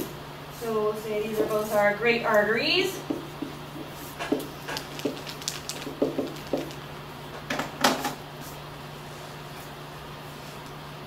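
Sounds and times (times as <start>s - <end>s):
marker writing on a whiteboard: 3.0s - 6.8s.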